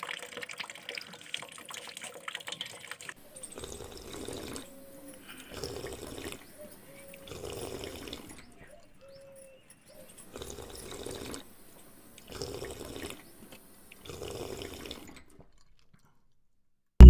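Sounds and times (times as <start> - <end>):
hose water splashing into tub: 0.0 - 3.2, 12.0 - 15.4.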